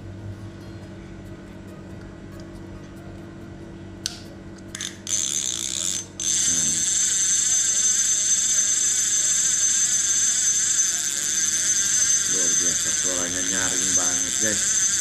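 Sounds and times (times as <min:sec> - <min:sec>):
fishing reel whirring: 0:04.7 - 0:15.0.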